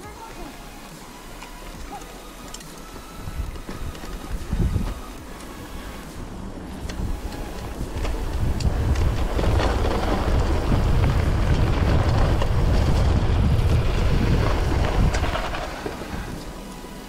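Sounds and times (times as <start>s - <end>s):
wind buffeting microphone: 3.0s - 16.6s.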